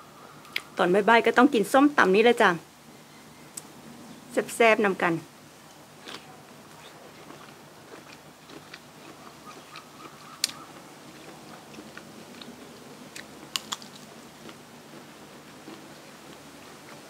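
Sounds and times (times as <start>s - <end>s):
biting and chewing: 6.0s - 17.0s.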